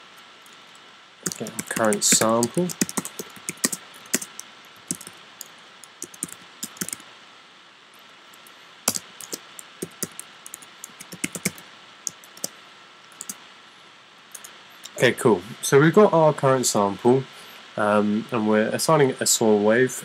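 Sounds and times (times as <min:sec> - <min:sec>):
keyboard typing clicks: 0:01.2 - 0:07.0, 0:08.9 - 0:12.5, 0:13.2 - 0:13.4.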